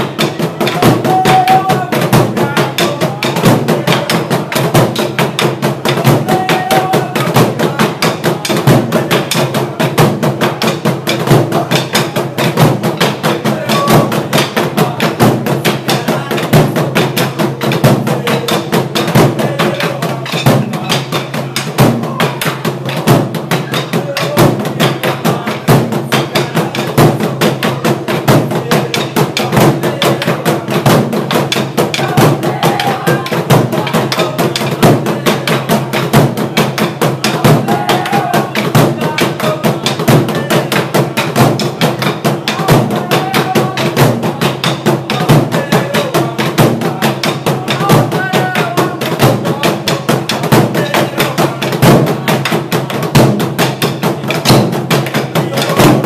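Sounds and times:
drums beaten with sticks: 0.0s - 56.0s.

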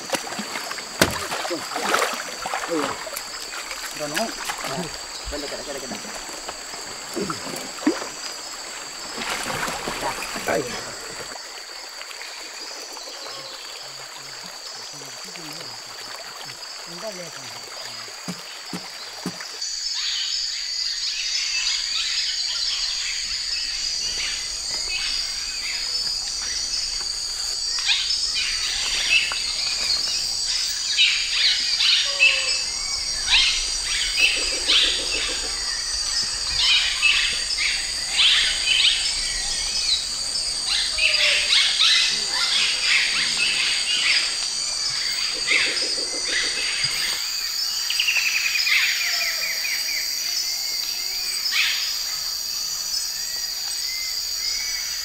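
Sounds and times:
high insect drone: 0.0s - 55.0s.

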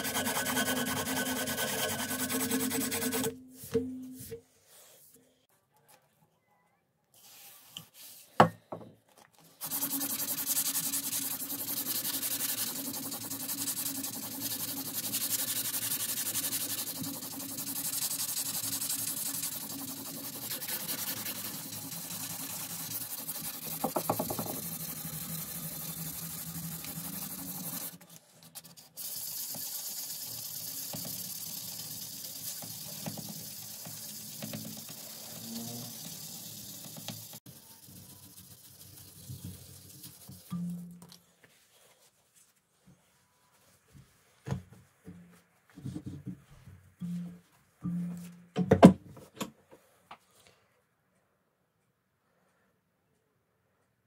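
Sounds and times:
abrasive paper scratching steel: 0.0s - 3.6s, 9.6s - 40.6s.

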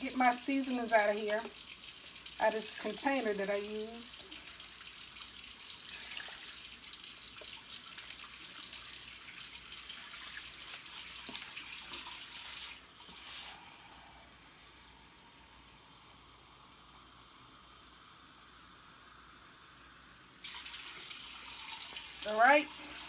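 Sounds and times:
water pouring into a pot: 0.0s - 13.9s, 20.0s - 23.0s.

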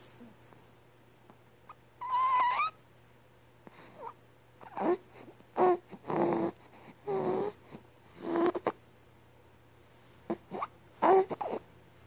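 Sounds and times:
baby squeaking: 2.0s - 2.8s, 10.5s - 11.6s
baby grunting and whimpering: 4.0s - 8.8s, 10.3s - 11.7s.

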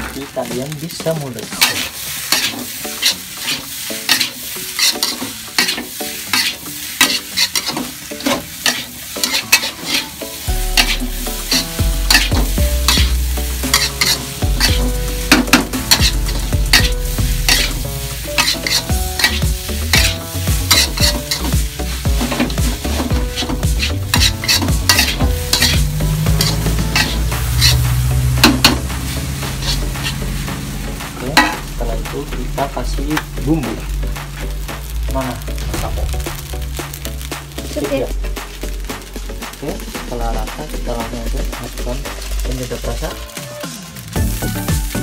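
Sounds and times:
rice sizzling: 0.0s - 45.0s
metal spatula scraping a wok: 1.4s - 31.8s.

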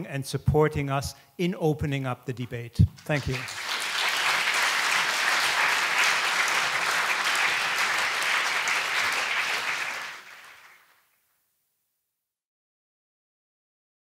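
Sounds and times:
audience applauding: 3.0s - 11.1s.

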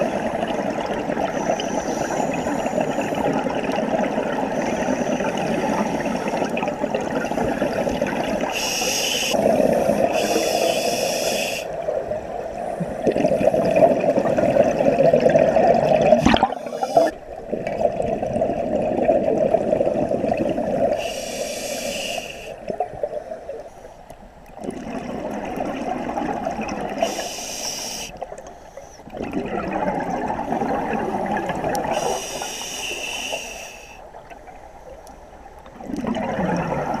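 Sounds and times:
hissing regulator inhales: 1.4s - 3.2s, 8.5s - 11.7s, 16.6s - 17.2s, 21.0s - 22.6s, 27.0s - 29.0s, 31.9s - 34.0s
bubbling exhales: 12.8s - 22.8s, 35.8s - 37.0s.

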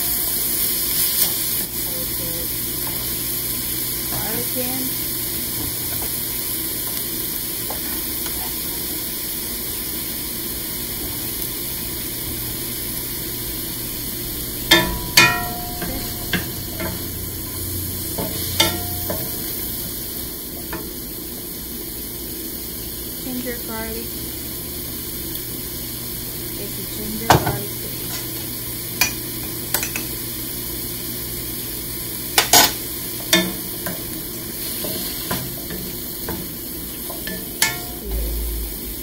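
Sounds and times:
onions sizzling in oil: 0.0s - 39.0s
spatula knocking against pan: 14.6s - 17.2s.

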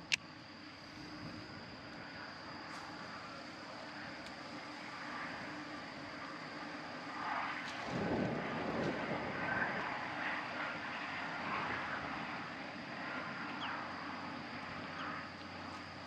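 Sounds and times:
wind blowing over microphone: 7.8s - 10.7s.

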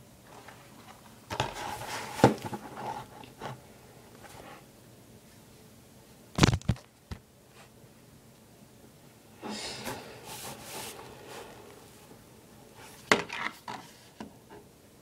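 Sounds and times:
plastic case scraping and rustling: 1.3s - 3.6s.

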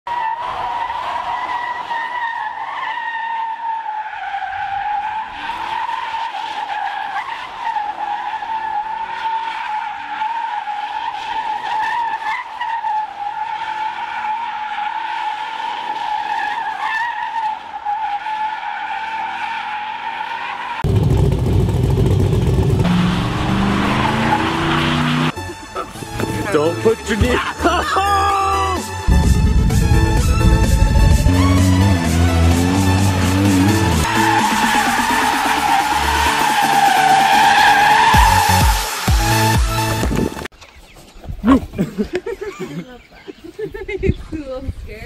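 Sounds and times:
tyres squealing in a burnout: 0.1s - 20.9s, 22.8s - 29.0s, 31.3s - 39.5s.

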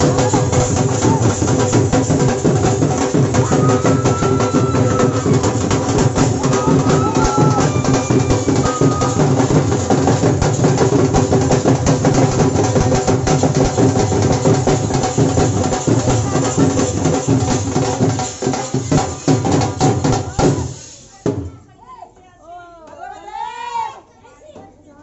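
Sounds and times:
drums playing fast beat: 0.0s - 21.7s.

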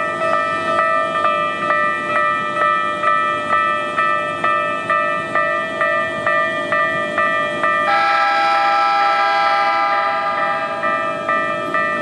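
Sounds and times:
level crossing bell ringing: 0.0s - 12.0s
train horn chord: 7.8s - 10.9s.

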